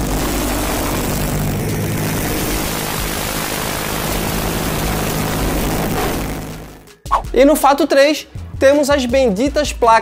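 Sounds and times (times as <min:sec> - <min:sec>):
motorcycle engine roaring: 0:00.0 - 0:07.0.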